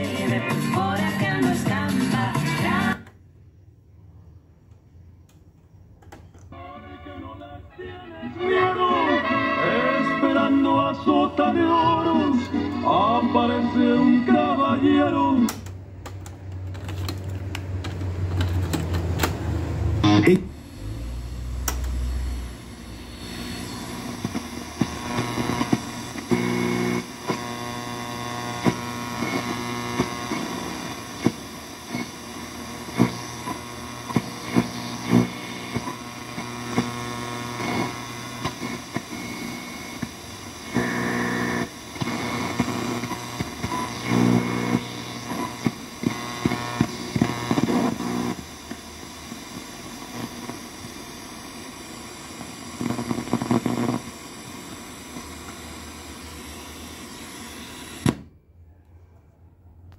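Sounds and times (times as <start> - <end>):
radio signals: 7.8 - 15.7, 20.0 - 58.2
radio static hiss and crackles: 20.0 - 58.2.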